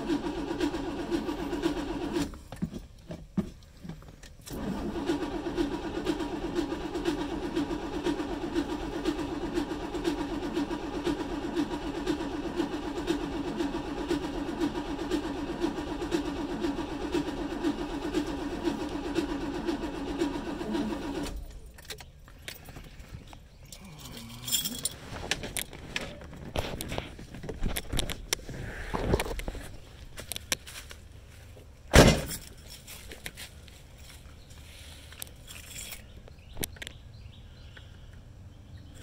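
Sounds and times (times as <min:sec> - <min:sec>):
starter motor cranking engine: 0:00.0 - 0:02.4, 0:04.4 - 0:21.8.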